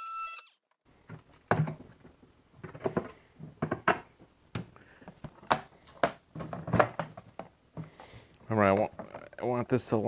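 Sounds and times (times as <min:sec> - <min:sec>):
hard plastic knocks and clacks: 0:01.1 - 0:08.0.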